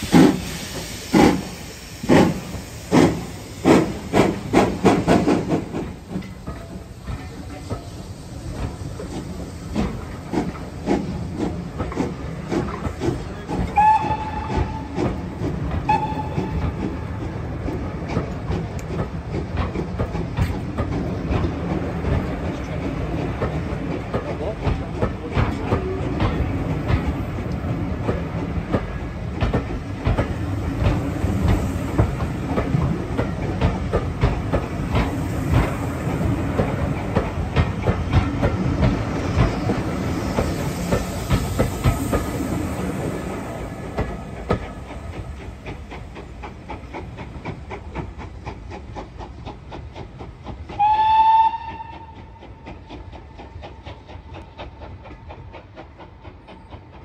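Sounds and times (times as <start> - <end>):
train wheels clicking over rail joints: 0.0 - 57.0
steam whistle blast: 13.7 - 14.9, 15.9 - 16.7, 50.8 - 52.2.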